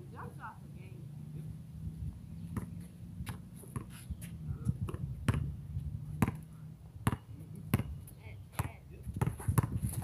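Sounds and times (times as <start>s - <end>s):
basketball bouncing on concrete: 2.5s - 10.0s.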